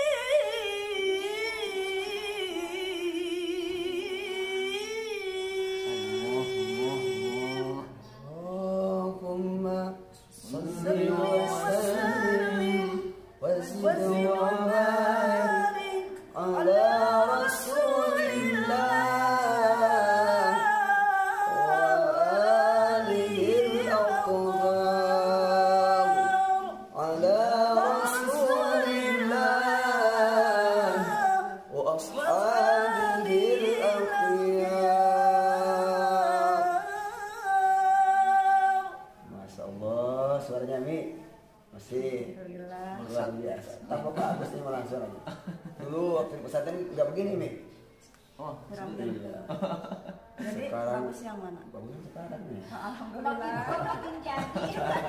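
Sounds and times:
woman chanting melodically: 0.0s - 39.2s.

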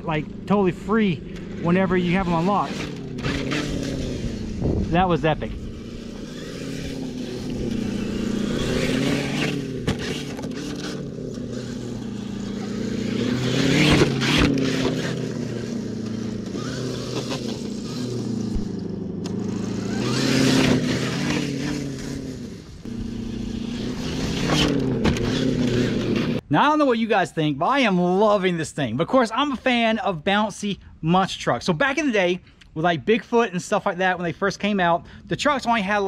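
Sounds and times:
rc truck motor revving: 0.1s - 26.4s.

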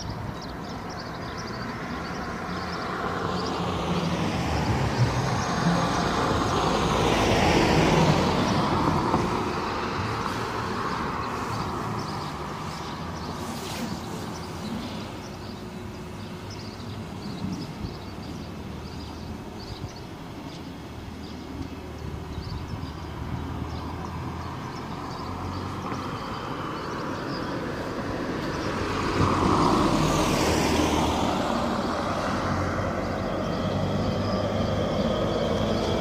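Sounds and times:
vehicle passing by: 2.4s - 15.1s, 23.5s - 36.0s.

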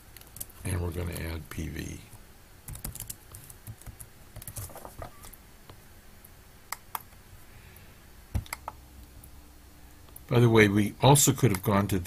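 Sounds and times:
typing on computer keyboard: 2.7s - 4.8s.

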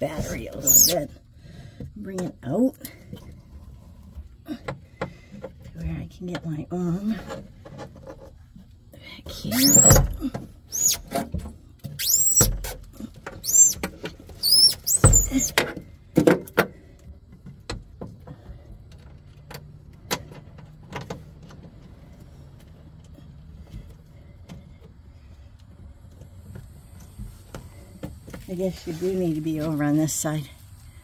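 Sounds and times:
high-pitched rubbing squeaks: 0.3s - 1.1s, 9.5s - 10.0s, 10.7s - 11.2s, 11.9s - 12.6s, 13.4s - 15.5s.

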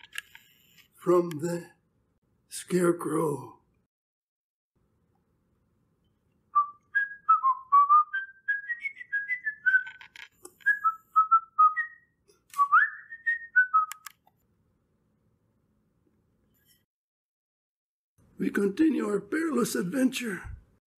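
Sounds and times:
person whistling a tune: 6.6s - 10.0s, 10.6s - 14.1s
sharp clicks: 13.9s - 14.4s.

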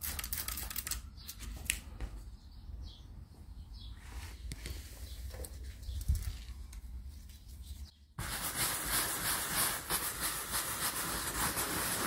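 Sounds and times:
brush scrubbing wet vinyl: 8.2s - 12.0s.

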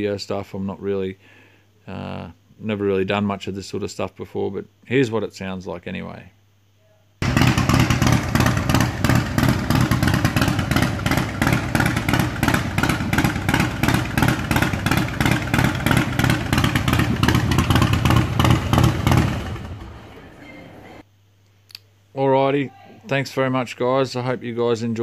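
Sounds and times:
motorcycle engine idling: 7.2s - 20.4s.

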